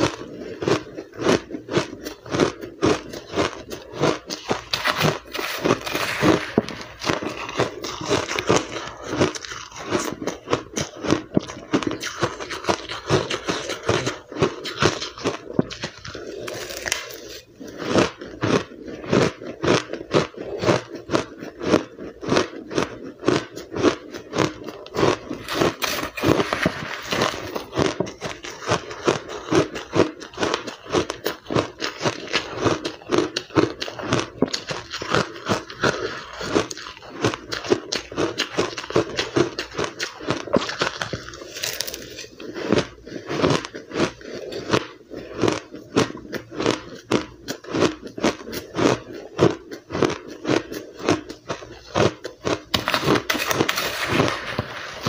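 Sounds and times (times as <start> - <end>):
chewing crushed ice: 0.0 - 55.0.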